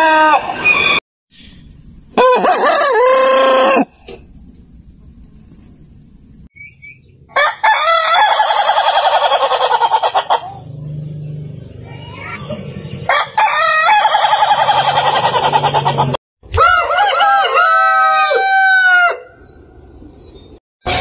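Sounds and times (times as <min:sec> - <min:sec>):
rooster crowing: 0:02.2 - 0:03.9, 0:07.3 - 0:09.7, 0:13.1 - 0:15.2, 0:16.6 - 0:19.4.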